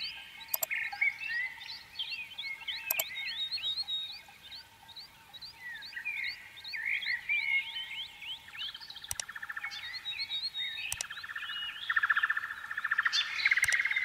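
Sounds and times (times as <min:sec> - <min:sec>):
bird pulsed trilling: 0:00.0 - 0:14.0
birds chirping swooping calls: 0:00.0 - 0:14.0
sharp clicks: 0:00.5 - 0:00.8, 0:02.8 - 0:03.3, 0:09.0 - 0:09.6, 0:10.8 - 0:11.4, 0:13.5 - 0:14.0.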